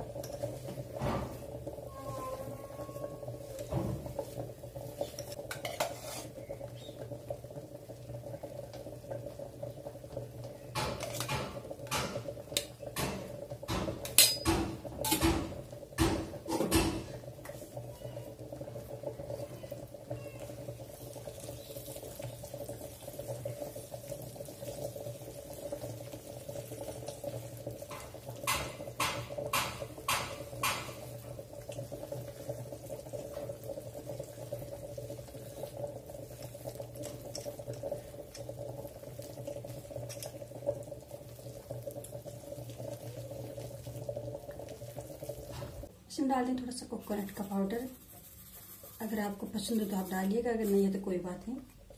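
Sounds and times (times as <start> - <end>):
spatula scraping steel pan: 5.5 - 6.4
spatula knocking against pan: 27.9 - 31.1.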